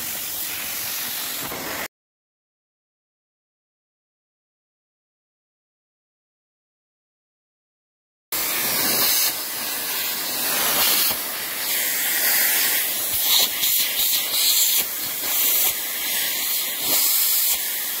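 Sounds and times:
vacuum suction hiss: 0:00.0 - 0:01.9, 0:08.4 - 0:18.0.

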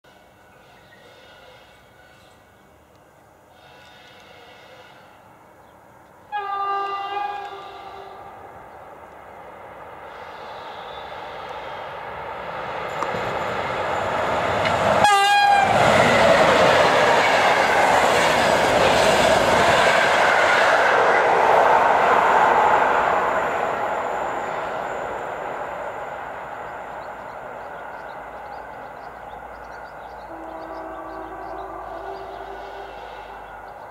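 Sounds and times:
train horn blast: 0:03.5 - 0:05.3, 0:06.3 - 0:08.6, 0:15.0 - 0:16.4, 0:30.1 - 0:33.7
train wheels clattering on rails: 0:12.5 - 0:22.6.

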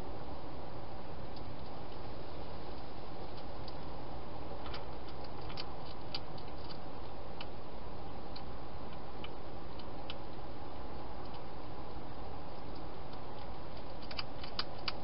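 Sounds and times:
steady hiss: 0:00.0 - 0:15.0
hedgehog crunching food: 0:03.3 - 0:15.0.

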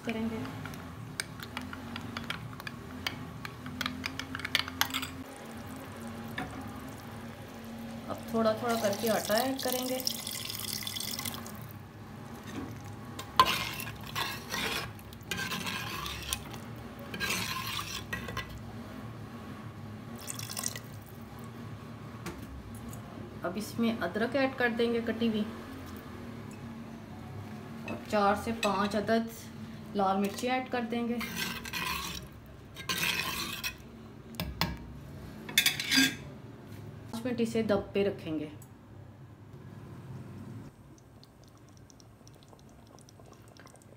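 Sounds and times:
ladle scraping and stirring gravy: 0:12.3 - 0:18.6, 0:31.1 - 0:33.9.

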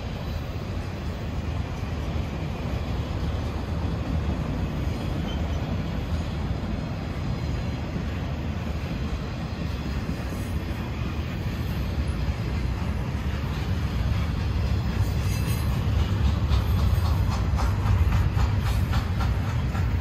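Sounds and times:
freight train wheels on rails: 0:00.0 - 0:20.0.

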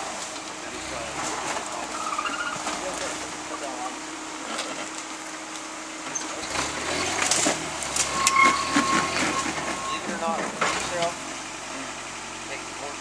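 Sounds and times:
tires and chassis scraping rock: 0:00.0 - 0:13.0
truck engine revving: 0:00.0 - 0:13.0
high-pitched whine: 0:07.7 - 0:10.4.

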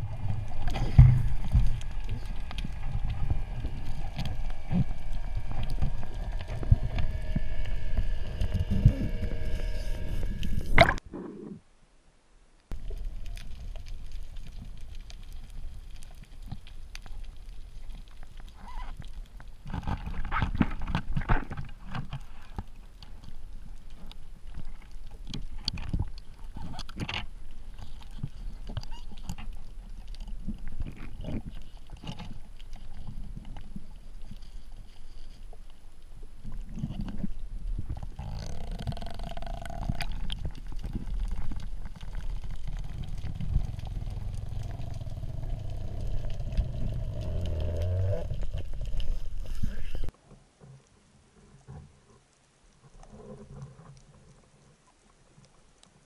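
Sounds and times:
underwater droning hum: 0:00.0 - 0:11.0, 0:12.7 - 0:50.1
underwater water sound: 0:00.0 - 0:11.7, 0:12.7 - 0:56.0.

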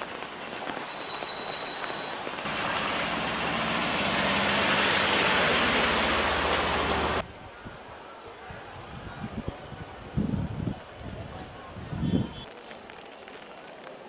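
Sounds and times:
steady rain hiss: 0:00.0 - 0:07.2.

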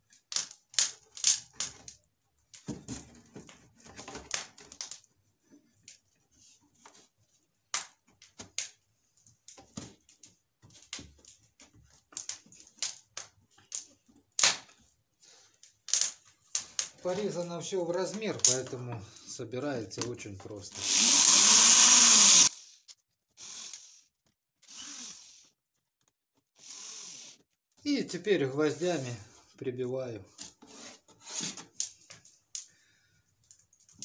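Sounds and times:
wood scraping and rubbing: 0:30.3 - 0:31.8.

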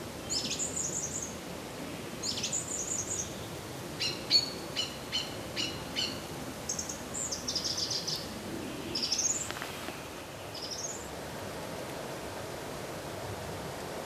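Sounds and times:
songbirds chirping and trilling: 0:00.0 - 0:11.2
steady hiss: 0:00.0 - 0:14.0.

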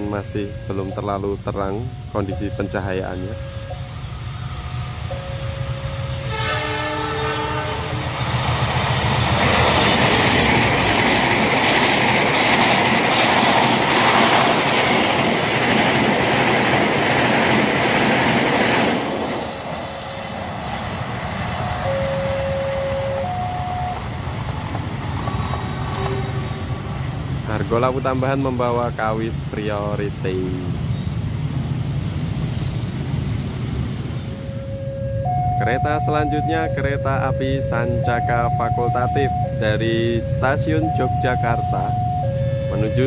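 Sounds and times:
train wheels on rails: 0:00.0 - 0:34.7
locomotive horn: 0:05.2 - 0:08.0, 0:21.6 - 0:24.0, 0:25.5 - 0:26.8.

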